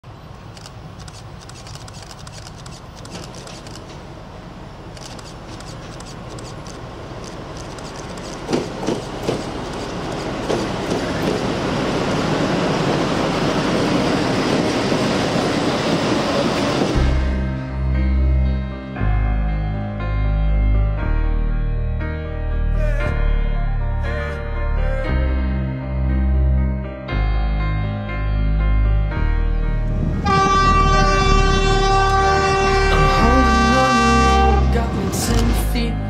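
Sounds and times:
diesel locomotive passing: 3.8 - 19.6, 29.4 - 36.0
wheels clacking over rail joints: 7.2 - 16.2.

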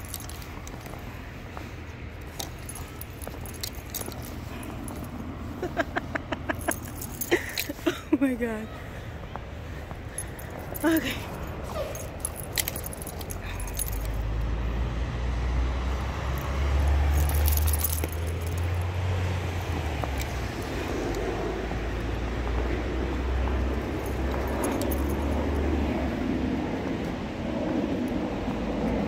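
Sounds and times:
dog harness tags jingling: 0.0 - 1.1, 2.2 - 8.0, 10.0 - 14.4, 16.3 - 20.4, 23.5 - 25.8
steady low rumble: 0.0 - 29.0.

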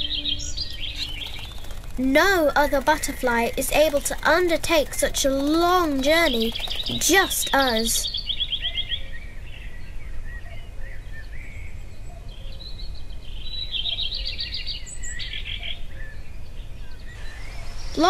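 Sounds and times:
birds chirping and trilling: 0.0 - 18.0
quick rattling trills: 0.4 - 8.1.

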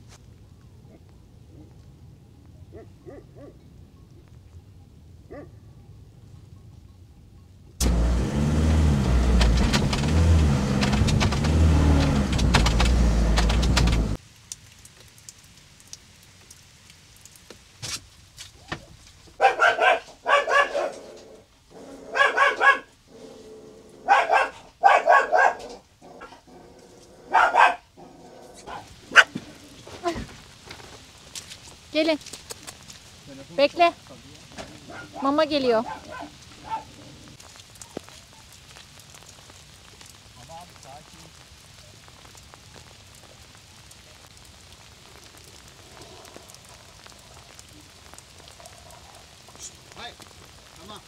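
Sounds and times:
dog barking: 2.7 - 3.6, 5.3 - 5.6, 19.4 - 21.1, 22.1 - 23.0, 24.0 - 26.4, 27.2 - 28.0, 28.6 - 29.4, 34.8 - 37.2
vehicle engine running: 7.8 - 14.2.

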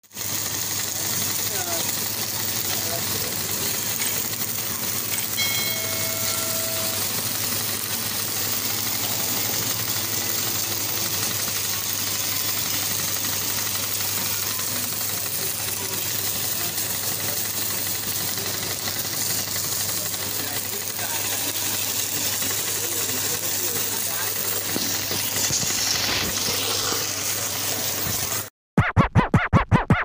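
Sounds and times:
pressure washer motor humming: 0.0 - 28.5
water jet hissing: 0.0 - 28.5.

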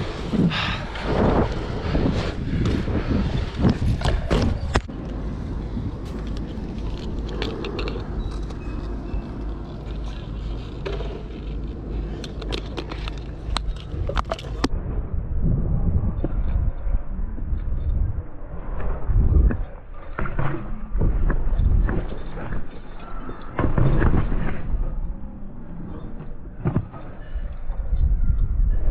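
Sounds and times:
skateboards rolling on concrete: 0.0 - 14.7.

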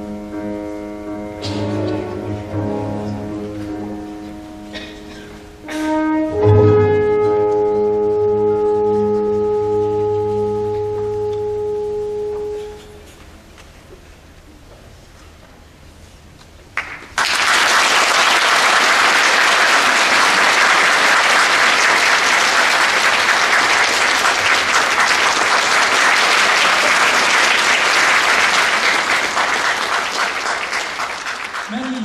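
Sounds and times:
orchestral music: 0.0 - 13.1
audience applause: 16.8 - 32.0.

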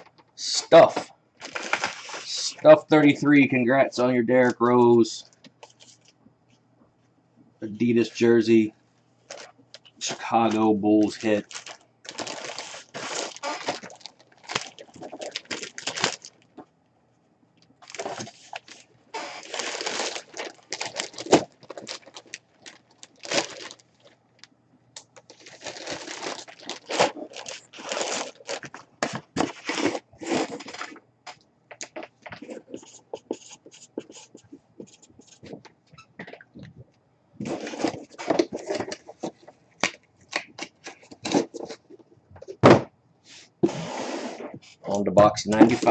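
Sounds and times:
plastic bag crinkling: 1.4 - 2.8, 9.3 - 16.6, 17.8 - 24.5, 25.2 - 31.0, 45.6 - 45.9.

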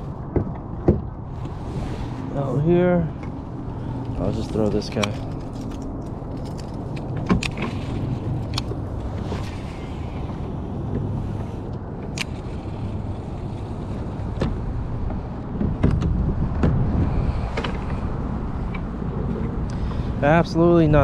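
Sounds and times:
wind rumbling on microphone: 0.0 - 21.0.

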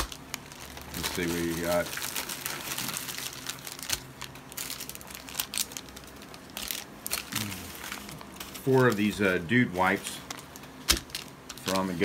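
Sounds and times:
plastic packets rustling: 0.0 - 12.0.

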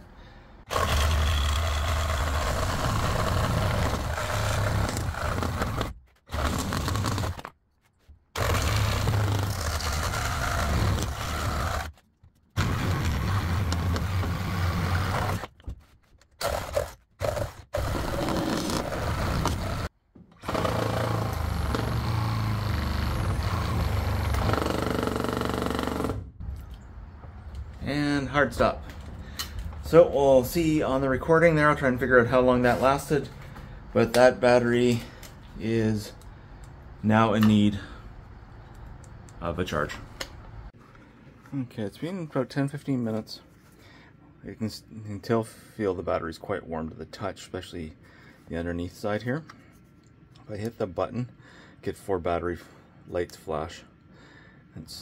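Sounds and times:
reciprocating saw cutting wood: 0.7 - 7.5, 8.4 - 12.0, 12.6 - 15.5, 16.4 - 26.2.

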